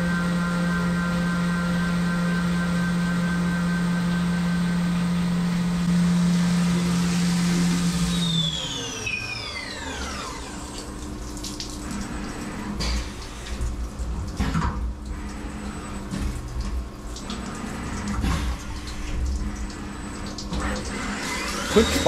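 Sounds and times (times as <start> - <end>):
mill spindle whine: 0.0 - 22.0
coolant spraying and splashing: 5.9 - 22.0.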